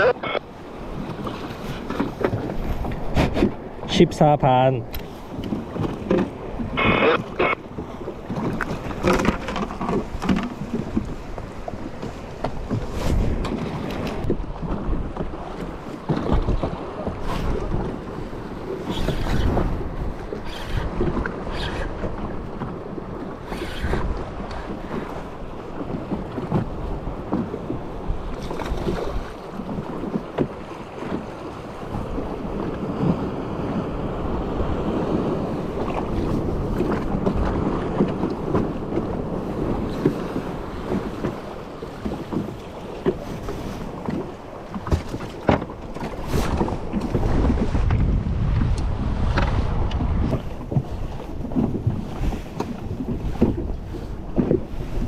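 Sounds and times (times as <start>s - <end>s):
water lapping against boat hull: 0.0s - 55.0s
wind buffeting microphone: 4.9s - 55.0s
sharp knocks and splashes: 7.8s - 18.1s, 42.0s - 55.0s.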